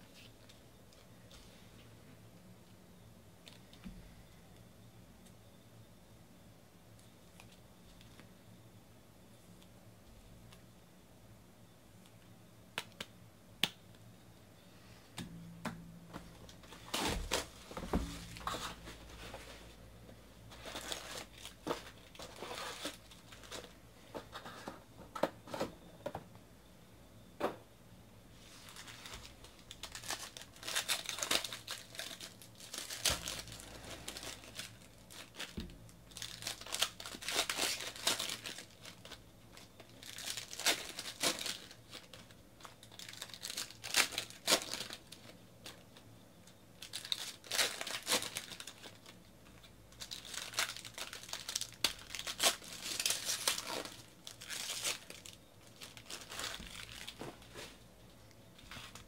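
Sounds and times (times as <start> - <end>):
foil wrappers tearing and crinkling: 16.5 - 19.4, 20.5 - 23.8, 28.5 - 45.9, 46.8 - 57.6.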